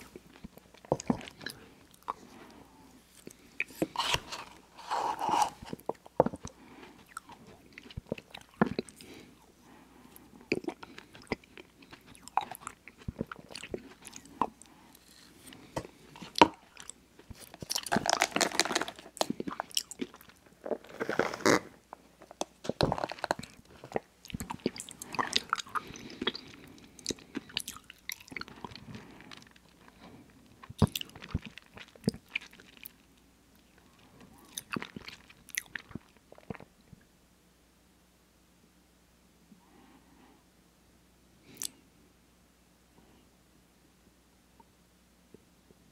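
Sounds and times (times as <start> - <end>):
wet chewing with mouth clicks: 0.0 - 4.6, 5.5 - 9.3, 10.2 - 21.6, 22.3 - 33.0, 33.6 - 36.7.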